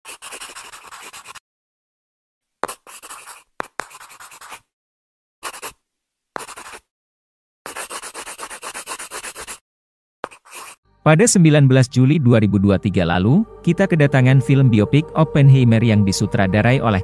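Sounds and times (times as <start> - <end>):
pencil scratching on paper: 0.0 - 1.4, 2.6 - 4.7, 5.4 - 5.8, 6.4 - 6.9, 7.7 - 9.6, 10.2 - 10.8.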